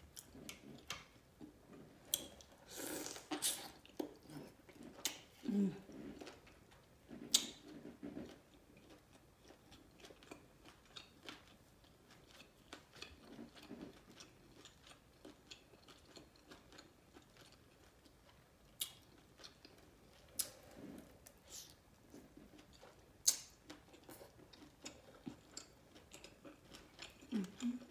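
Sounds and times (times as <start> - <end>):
chewing soft food: 0.0 - 27.9
small mouth clicks: 23.2 - 23.6.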